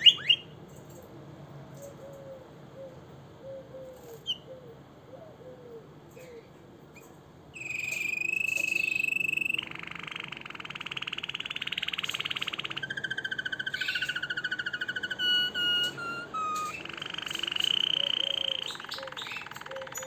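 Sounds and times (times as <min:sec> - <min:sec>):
canary singing: 0:00.0 - 0:00.6, 0:06.2 - 0:20.0.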